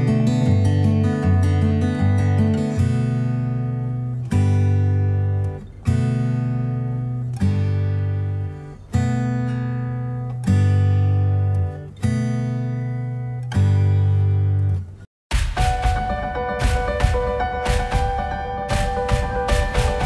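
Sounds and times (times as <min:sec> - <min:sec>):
sustained chords background music: 0:15.6 - 0:20.0.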